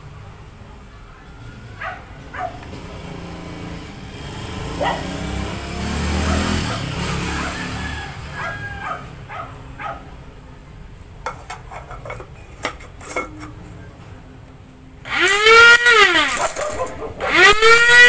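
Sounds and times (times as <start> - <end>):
coffee grinder motor whining: 15.1 - 18.0.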